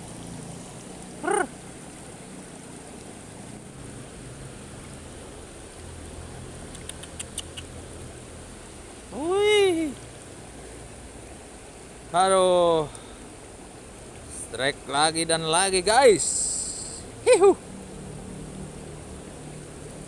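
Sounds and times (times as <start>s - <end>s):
river flowing: 0.0s - 20.0s
man exclaiming loudly: 1.2s - 1.5s, 9.1s - 10.0s, 15.9s - 17.6s
faint clicks: 6.7s - 7.7s.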